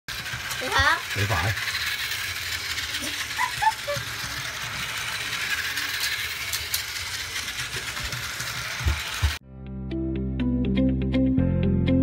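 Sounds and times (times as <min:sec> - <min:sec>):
toy train whirring and rattling: 0:00.1 - 0:09.4.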